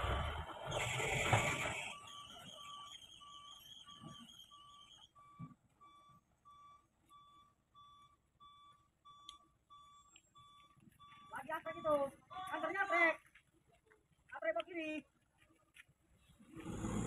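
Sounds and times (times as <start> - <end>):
truck reversing alarm beeping: 0.0 - 13.1.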